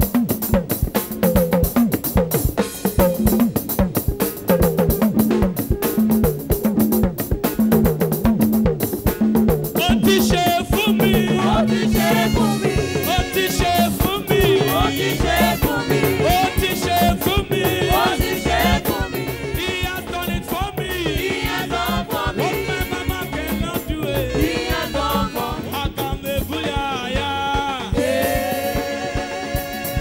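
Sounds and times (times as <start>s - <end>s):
drums pulsing: 0.0s - 30.0s
live gospel band playing: 0.0s - 30.0s
man singing into a microphone: 9.8s - 30.0s.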